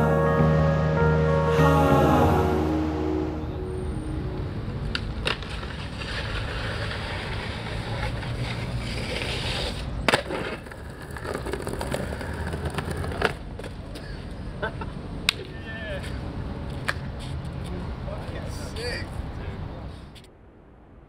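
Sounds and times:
skateboard rolling on concrete: 4.7s - 20.3s
skateboard clicks: 4.8s - 14.1s.

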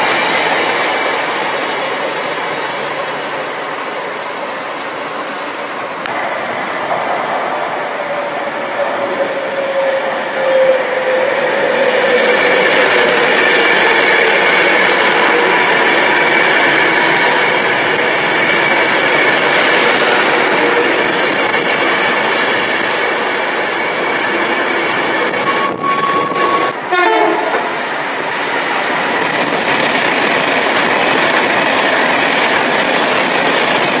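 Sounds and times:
train passing at speed: 0.0s - 34.0s
train horn: 9.0s - 12.6s, 25.5s - 27.7s.

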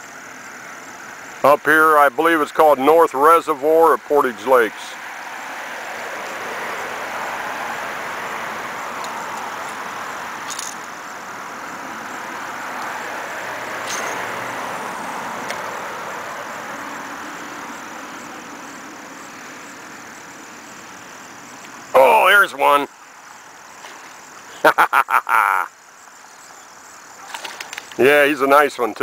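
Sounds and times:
cars passing: 0.0s - 28.9s.

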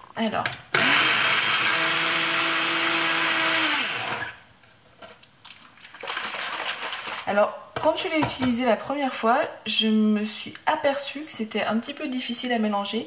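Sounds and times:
blender motor running: 0.7s - 4.4s
blender spinning down: 0.8s - 4.4s.

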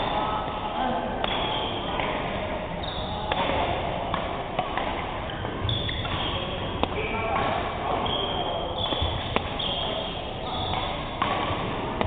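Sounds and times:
racket hitting shuttlecock: 1.2s - 2.3s, 3.3s - 12.0s
shoes squeaking on wooden court: 2.8s - 3.5s, 5.3s - 11.7s.

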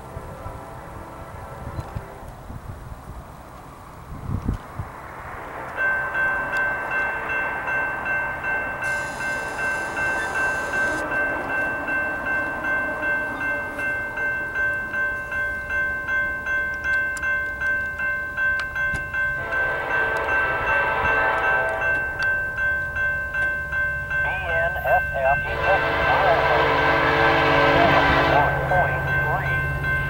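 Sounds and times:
train air horn: 0.0s - 2.4s, 8.8s - 11.4s, 19.4s - 22.2s, 24.5s - 29.5s
level crossing bell ringing: 5.8s - 30.0s.

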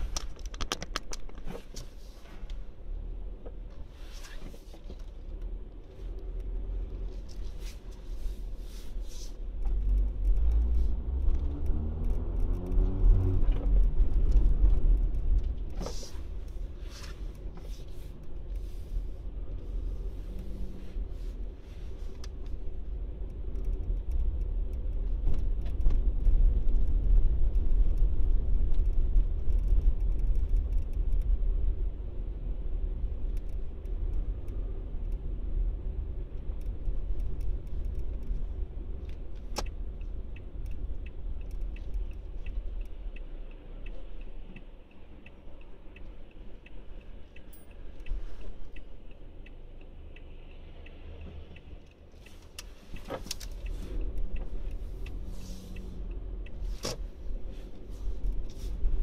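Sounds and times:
light clicks and rattles: 0.0s - 2.6s, 21.4s - 31.4s
car engine and road noise: 0.0s - 59.0s.

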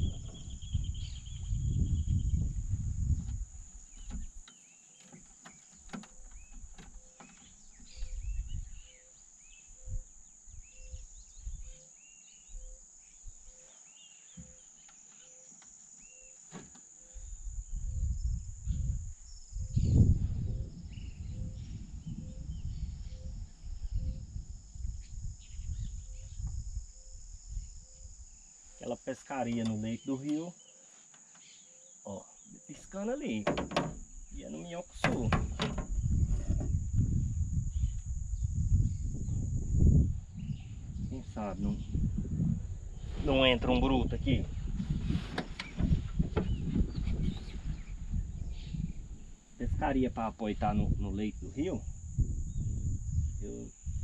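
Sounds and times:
bird chirps: 0.0s - 2.5s, 3.8s - 16.4s
insects buzzing: 0.0s - 54.0s.

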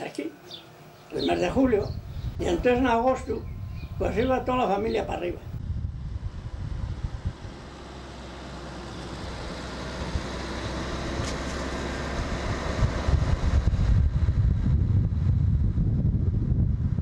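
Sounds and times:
gusty wind on the microphone: 1.3s - 17.0s
car engine and road rumble: 5.5s - 17.0s.

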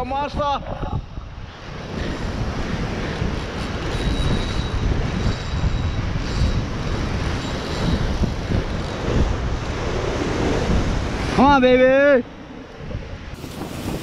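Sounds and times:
wind on microphone: 0.0s - 14.0s
surf breaking on rocks: 13.4s - 14.0s.

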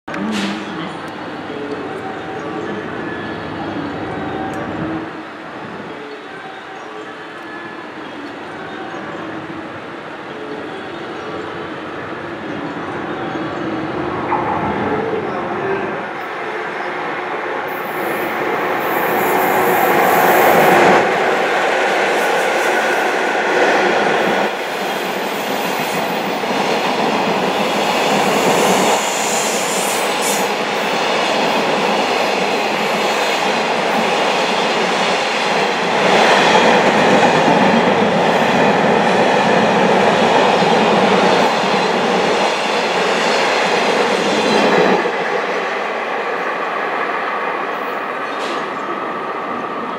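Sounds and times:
train wheels on rails: 17.0s - 49.9s.

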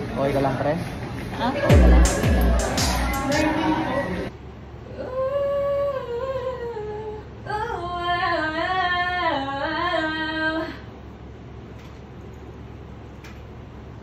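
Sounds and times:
woman singing unaccompanied: 4.9s - 10.8s.

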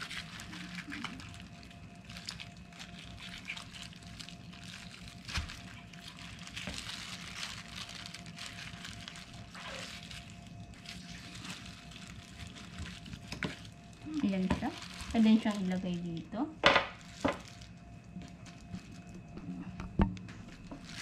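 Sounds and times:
wet squishing: 0.0s - 15.7s
faint steady hum: 0.0s - 21.0s.

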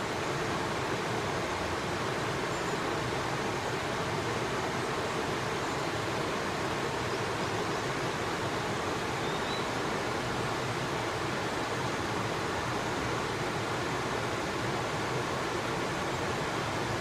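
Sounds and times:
river water rushing: 0.0s - 17.0s
faint high chirp: 9.2s - 9.7s.

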